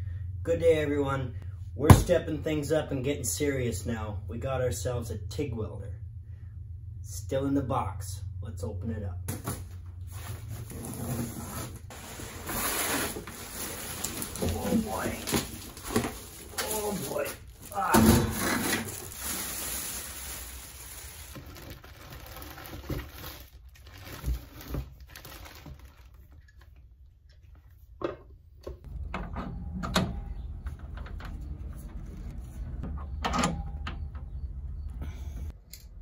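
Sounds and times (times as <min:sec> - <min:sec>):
plastic wrapping rustling: 0:10.1 - 0:26.5.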